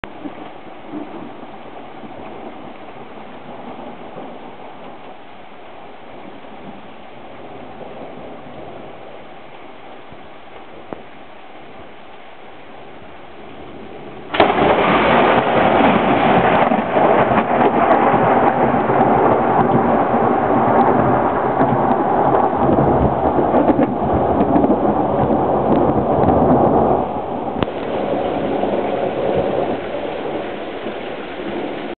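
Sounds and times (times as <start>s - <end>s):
steady rain: 0.0s - 32.0s
loud thunder crack and roll: 14.2s - 32.0s.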